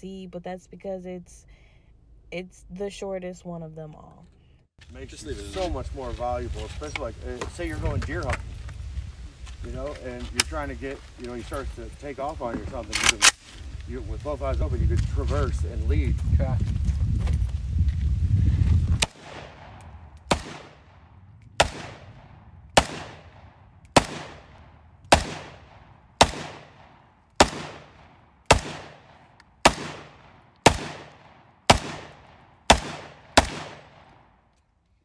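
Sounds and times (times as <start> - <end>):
low rumbling: 4.8 - 34.3
pistol shots echoing: 19.0 - 21.0, 21.6 - 34.3.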